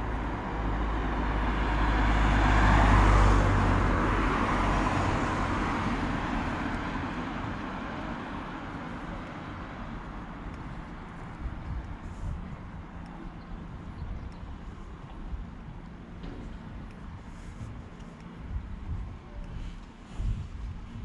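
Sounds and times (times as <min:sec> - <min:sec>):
car driving past: 0:00.6 - 0:07.5.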